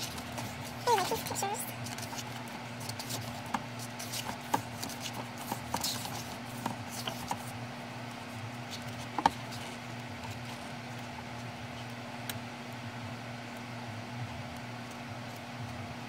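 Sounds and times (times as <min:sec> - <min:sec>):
book pages being turned: 0:00.0 - 0:11.9
low background hum: 0:00.0 - 0:16.0.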